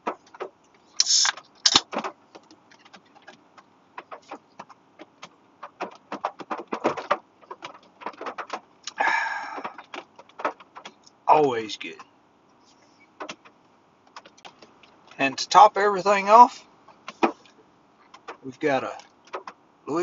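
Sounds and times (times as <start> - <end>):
can hissing open: 1.0 - 1.8.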